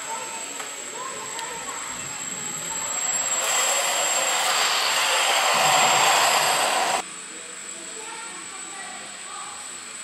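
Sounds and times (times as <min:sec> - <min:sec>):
rc plane motor whirring: 0:02.1 - 0:07.0.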